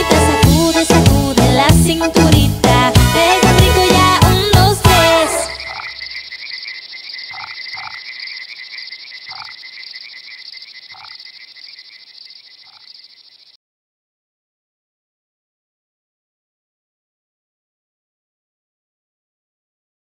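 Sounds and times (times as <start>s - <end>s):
children's dance song: 0.0s - 5.8s
frog chorus trill: 5.0s - 13.6s
deep frog croaks: 5.4s - 13.6s.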